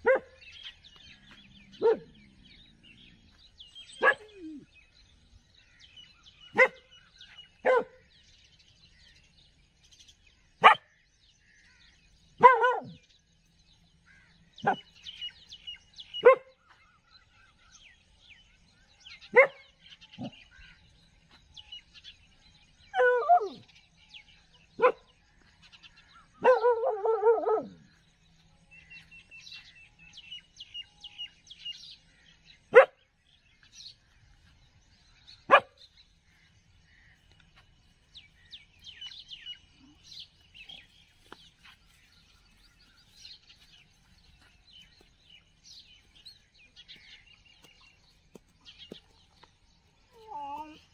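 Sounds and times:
dog barking: 0:00.0 - 0:00.5, 0:01.8 - 0:02.2, 0:04.0 - 0:04.6, 0:06.5 - 0:06.9, 0:07.6 - 0:08.0, 0:10.6 - 0:10.9, 0:12.4 - 0:13.0, 0:14.6 - 0:14.9, 0:16.2 - 0:16.5, 0:19.3 - 0:20.3, 0:24.8 - 0:25.1, 0:26.4 - 0:27.8, 0:32.7 - 0:33.0, 0:35.5 - 0:35.8
faint birds chirping: 0:00.0 - 0:50.9.

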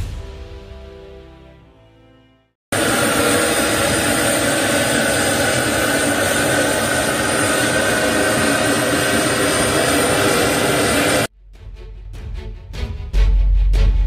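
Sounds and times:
jet engine whine: 0:02.7 - 0:11.3.

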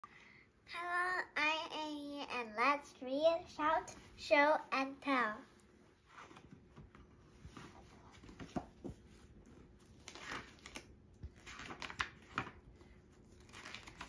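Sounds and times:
paper rustling: 0:06.1 - 0:14.0.

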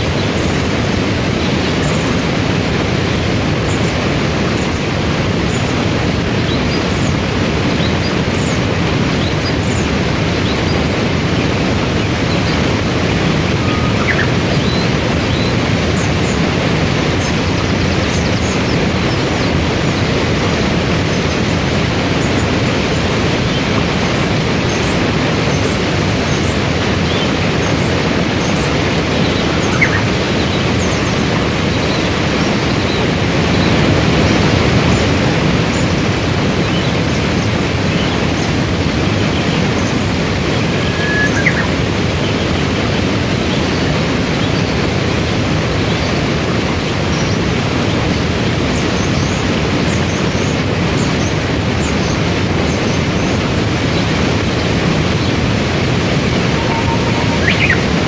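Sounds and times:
waterfall and rapids rushing: 0:00.0 - 0:58.0
faint high chirps: 0:56.3 - 0:58.0.

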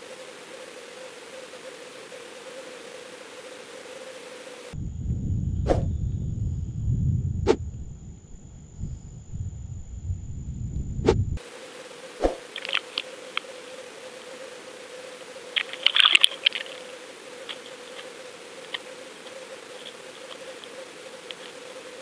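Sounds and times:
sharp underwater clicks: 0:12.2 - 0:13.5, 0:15.6 - 0:16.8
crackling clicks: 0:12.3 - 0:13.5, 0:15.5 - 0:22.0.

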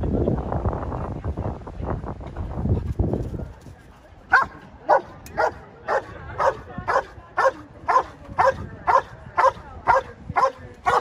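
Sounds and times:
dog barking rhythmically: 0:04.4 - 0:11.0.

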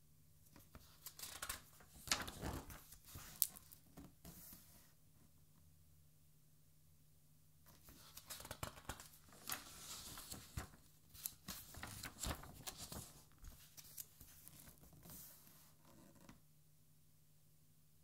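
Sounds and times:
book page turning: 0:00.6 - 0:04.7, 0:07.8 - 0:15.6.

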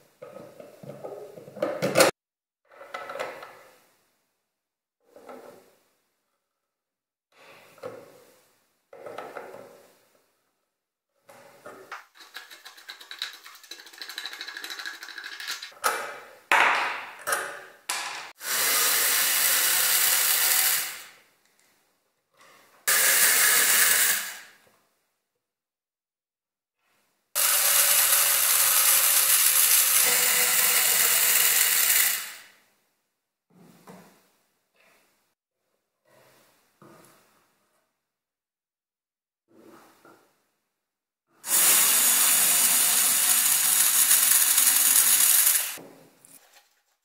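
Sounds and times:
cordless drill running: 0:18.4 - 0:21.1, 0:27.4 - 0:32.5, 0:41.5 - 0:45.8.

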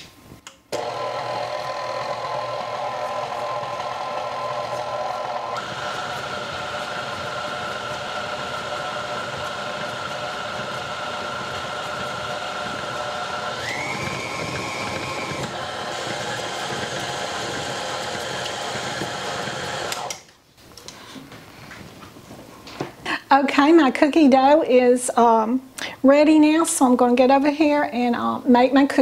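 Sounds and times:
stand mixer motor whining: 0:00.8 - 0:20.2.

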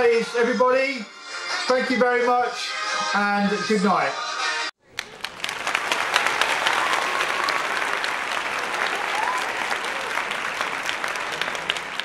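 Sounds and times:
audience applause: 0:04.9 - 0:12.0.

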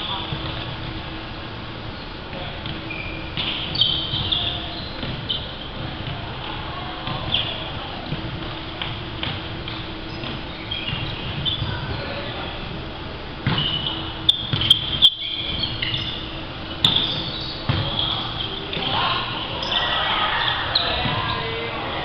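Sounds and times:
sneakers squeaking on wooden court: 0:00.0 - 0:01.2, 0:01.9 - 0:12.5, 0:13.4 - 0:22.0
players calling out: 0:13.5 - 0:22.0.

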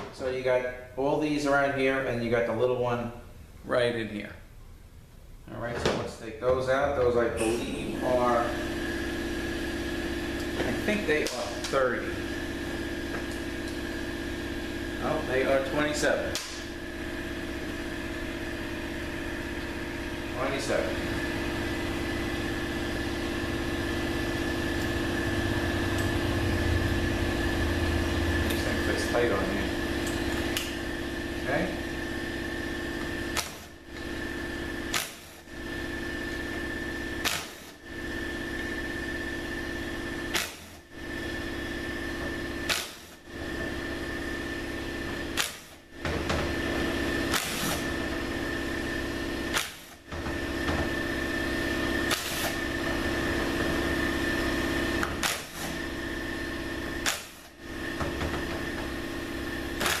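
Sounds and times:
sharp click: 0:16.3 - 0:16.6
small electric motor humming: 0:21.8 - 1:00.0.

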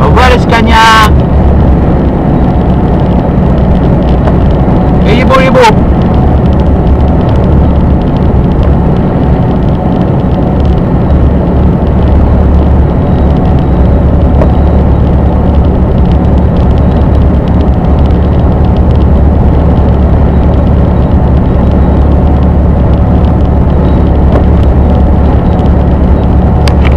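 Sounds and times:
truck engine and tyre drone: 0:00.0 - 0:26.9.

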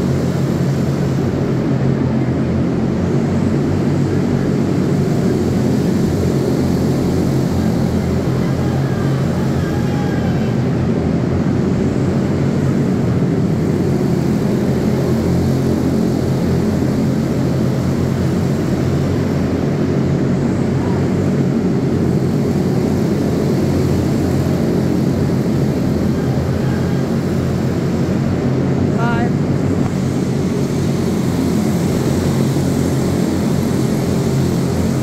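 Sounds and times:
go-kart engines racing: 0:00.0 - 0:35.0.

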